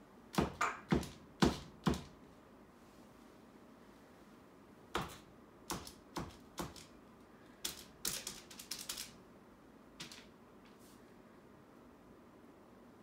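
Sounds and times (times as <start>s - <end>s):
marker tapping on wall: 0.3s - 2.2s.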